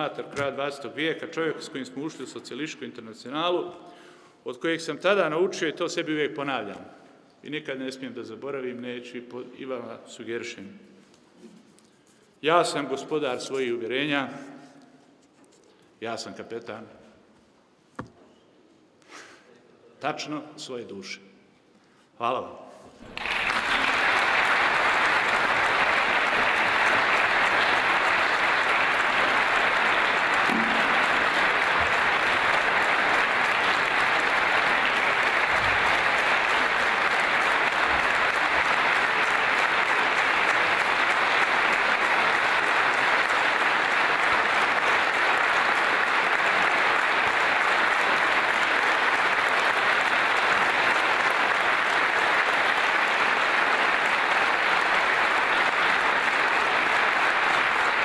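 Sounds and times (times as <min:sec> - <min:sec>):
audience applause: 0:23.0 - 0:58.0.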